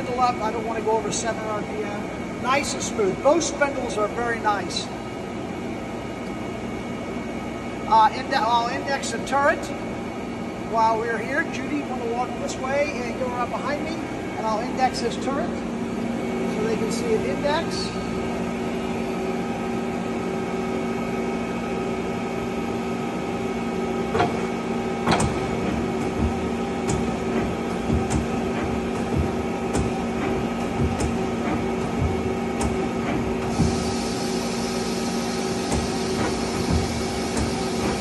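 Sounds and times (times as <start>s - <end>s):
machine running hum: 0.0s - 38.0s
lathe turret clunks: 24.1s - 38.0s.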